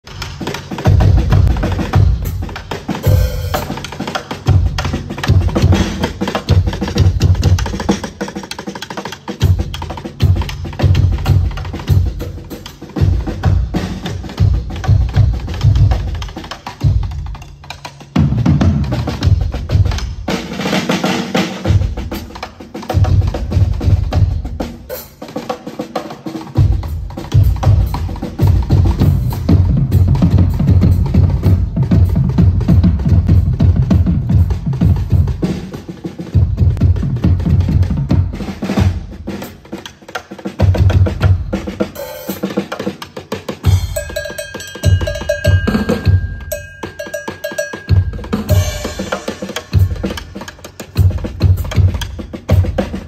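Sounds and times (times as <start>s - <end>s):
heavy kick drum beats: 0.0s - 8.4s, 9.3s - 17.6s, 18.2s - 25.5s, 26.4s - 39.8s, 40.5s - 53.0s
drum kit groove: 0.0s - 53.0s
snare tom and cymbal strokes: 0.0s - 53.0s
bass drum thumps: 28.5s - 35.4s.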